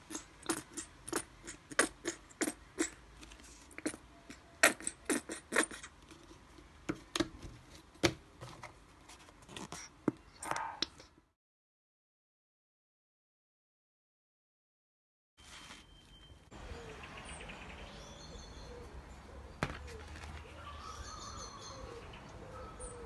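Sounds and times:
paper rustle: 0:15.4 - 0:16.3, 0:19.6 - 0:20.6.

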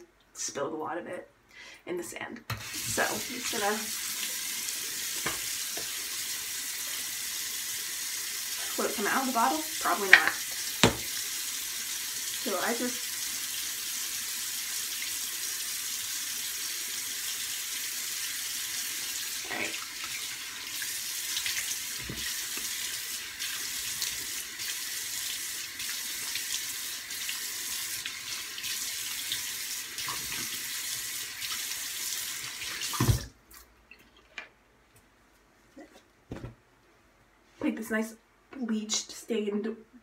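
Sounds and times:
tap water running into sink: 0:02.5 - 0:33.3
tap shut-off knock: 0:10.2 - 0:11.1.

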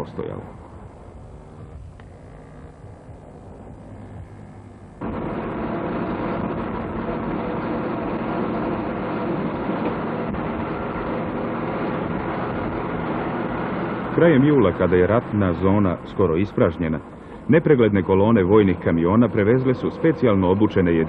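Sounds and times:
vehicle engine and road noise: 0:00.0 - 0:21.0.

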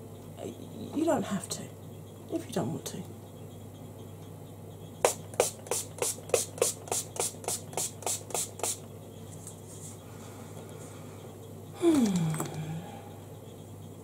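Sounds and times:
spray bottle spritzing: 0:05.1 - 0:08.8.

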